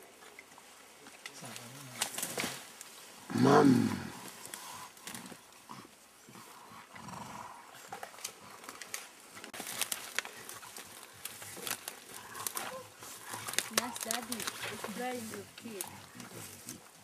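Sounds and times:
leaves rustling: 0:00.0 - 0:17.0
stems snapping: 0:01.2 - 0:02.9, 0:08.0 - 0:16.8
gorilla grunt: 0:03.3 - 0:04.3.

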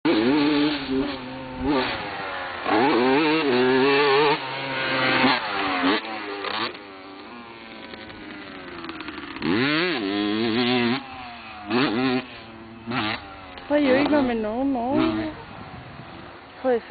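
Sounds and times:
motocross engine revving: 0:00.1 - 0:16.9.

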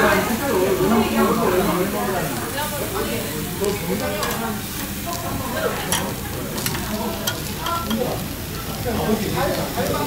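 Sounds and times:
ribs sizzling on charcoal grill: 0:00.0 - 0:10.0
metal tongs clicking on grate: 0:04.1 - 0:04.5, 0:05.8 - 0:08.2.

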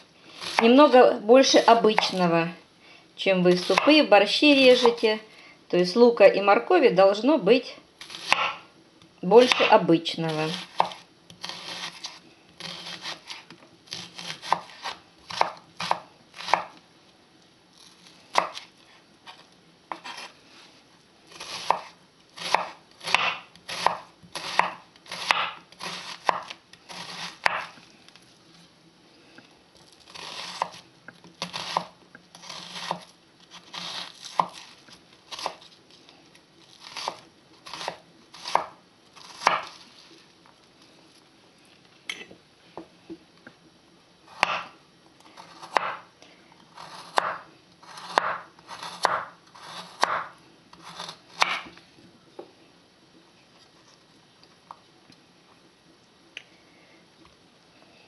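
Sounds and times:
knife slicing onion on board: 0:00.3 - 0:00.9, 0:01.5 - 0:02.3, 0:03.5 - 0:05.0, 0:08.0 - 0:08.6, 0:09.4 - 0:16.8, 0:18.3 - 0:20.4, 0:21.3 - 0:27.8, 0:30.1 - 0:30.8, 0:31.4 - 0:35.7, 0:36.8 - 0:39.8, 0:44.3 - 0:44.7, 0:45.4 - 0:46.0, 0:46.8 - 0:51.7.

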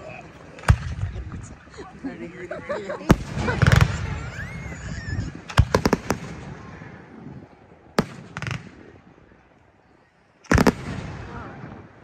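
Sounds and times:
fireworks bursting: 0:00.0 - 0:01.6, 0:03.0 - 0:07.2, 0:07.9 - 0:09.2, 0:10.4 - 0:12.0.

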